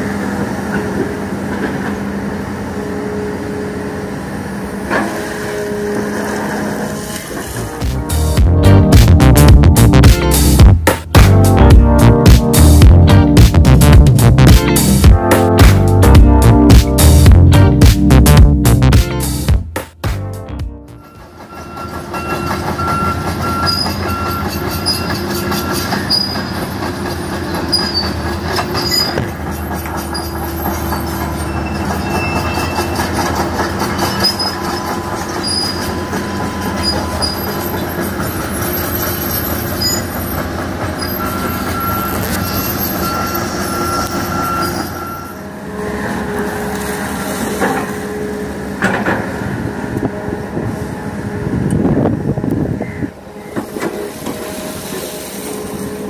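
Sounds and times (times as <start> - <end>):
excavator diesel engine: 0.0 - 56.0
metallic squealing and clanking: 20.9 - 46.4.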